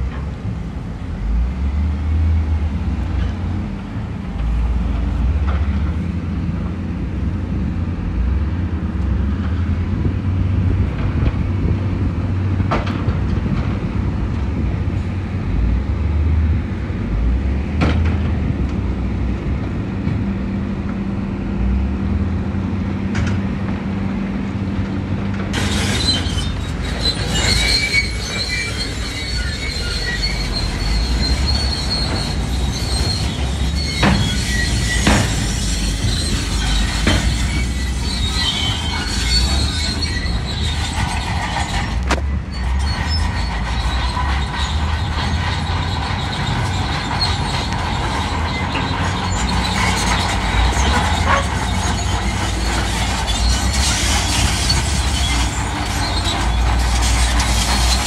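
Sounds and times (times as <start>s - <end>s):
diesel engine rumbling: 0.0s - 58.0s
metallic squealing and rattling: 25.5s - 58.0s.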